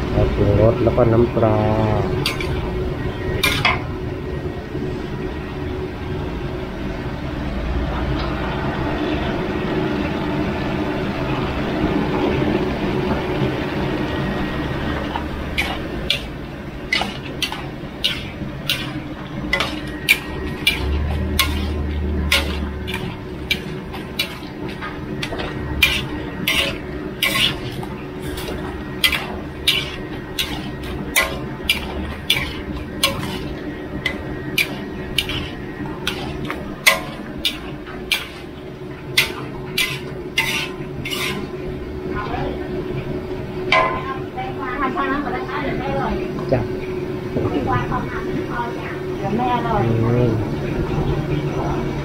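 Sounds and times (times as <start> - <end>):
steady hiss of frying: 0.0 - 52.0
metal spatula stirring in wok: 2.1 - 3.8, 15.5 - 41.7
spatula clanking against wok: 2.2 - 2.6, 3.4 - 3.8, 15.5 - 38.5, 39.1 - 41.6.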